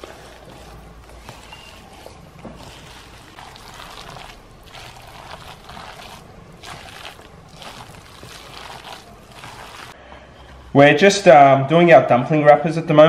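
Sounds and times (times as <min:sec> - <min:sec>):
wet sticky swishing of filling: 0:00.0 - 0:10.0.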